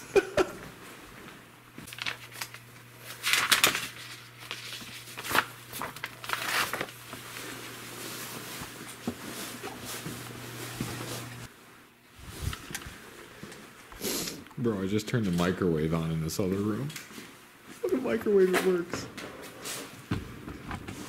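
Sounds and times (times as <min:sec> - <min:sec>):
microwave oven humming: 0:00.0 - 0:16.9
crinkling rustling handling noises: 0:01.8 - 0:11.4.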